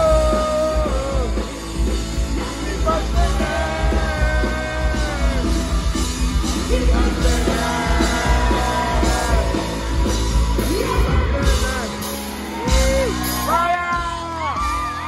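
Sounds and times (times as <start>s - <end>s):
person singing: 0.0s - 1.6s, 2.4s - 9.8s
fans whooping and yelling: 0.0s - 15.0s
loud drums: 0.0s - 15.0s
ska-punk band playing live: 0.0s - 15.0s.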